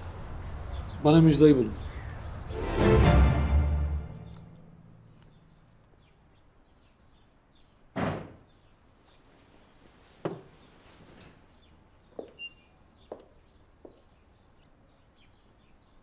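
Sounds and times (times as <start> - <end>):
door thudding shut: 8.0 - 8.4.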